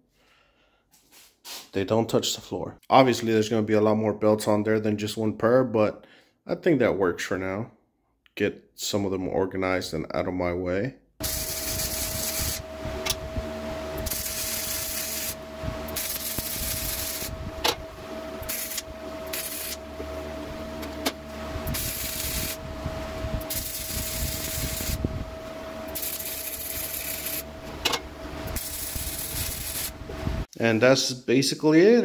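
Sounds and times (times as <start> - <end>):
welding arc crackling: 11.2 - 13.2, 13.9 - 22.6, 23.3 - 25.0, 25.8 - 30.0
steady hum: 11.2 - 30.5.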